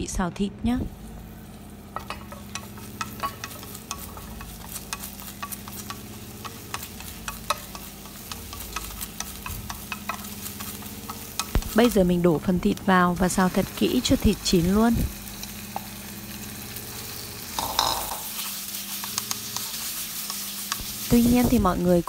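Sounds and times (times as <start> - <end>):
shallot frying in oil: 0.8 - 22.0
chopsticks tapping pan: 1.9 - 12.2, 17.5 - 21.5.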